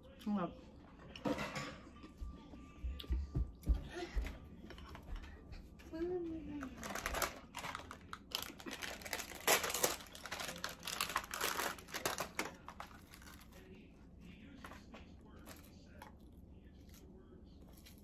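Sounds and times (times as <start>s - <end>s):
plastic packaging crinkling: 6.6s - 13.6s.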